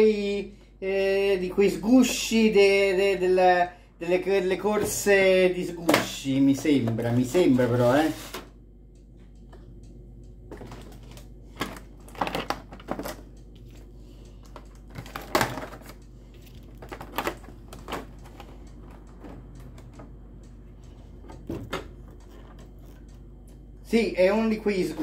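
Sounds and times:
plastic packaging clicking and crackling: 0:10.5 - 0:20.2, 0:21.2 - 0:23.2.

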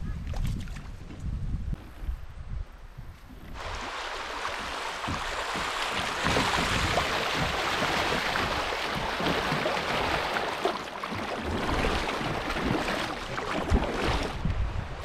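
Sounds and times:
kayak paddle splashing: 0:03.3 - 0:14.6
rushing river water: 0:03.5 - 0:15.0.

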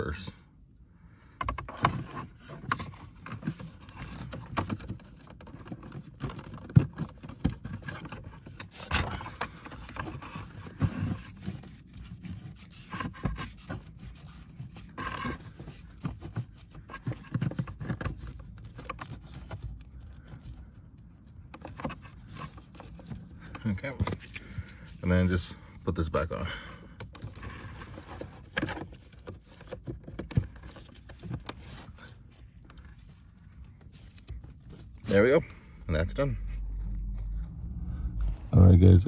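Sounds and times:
filter scraping in plastic housing: 0:01.4 - 0:20.6.

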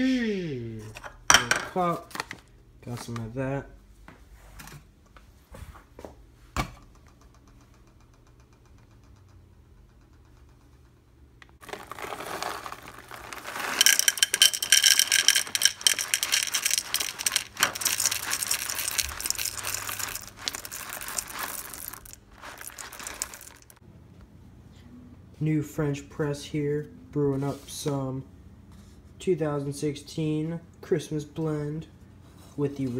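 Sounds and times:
bag crinkling: 0:11.6 - 0:23.8
coffee beans rattling into plastic cup: 0:11.6 - 0:23.8.

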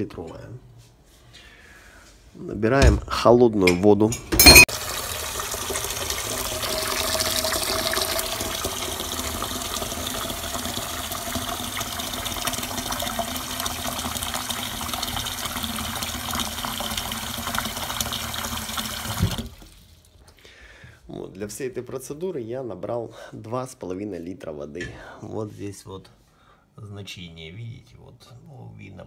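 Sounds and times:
tap water filling a pot: 0:04.7 - 0:20.0.

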